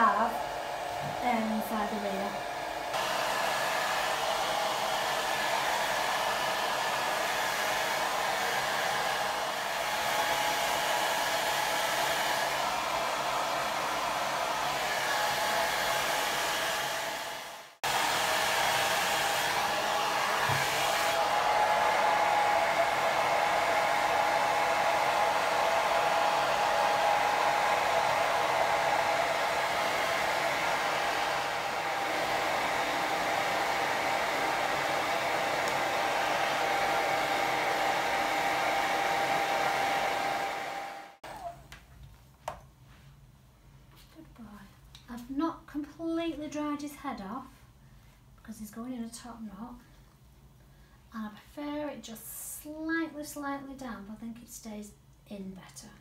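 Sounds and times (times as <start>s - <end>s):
hairdryer blowing: 0.0s - 41.6s.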